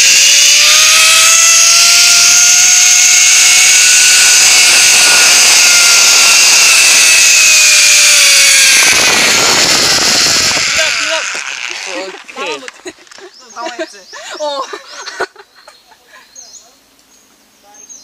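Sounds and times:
zipline pulley whining: 0.0s - 13.3s.

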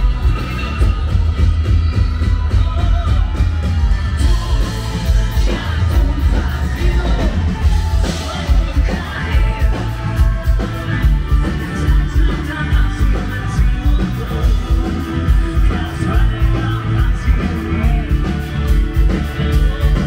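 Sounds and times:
crowd shouting: 0.0s - 13.4s
live rock band playing: 0.0s - 20.0s
man singing lead vocal: 0.0s - 20.0s.

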